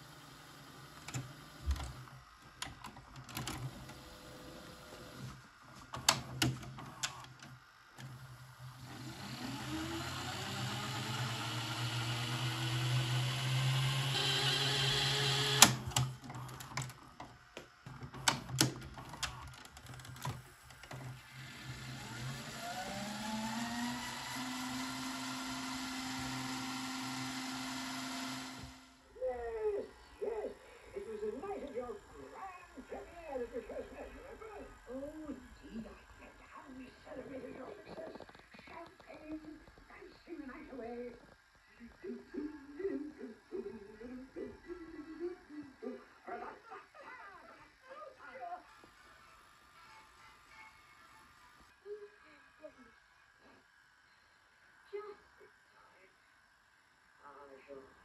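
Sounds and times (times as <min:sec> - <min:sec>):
tape winding whine: 0:00.0 - 0:47.0
tape mechanism clicking: 0:00.8 - 0:04.1, 0:05.8 - 0:28.8.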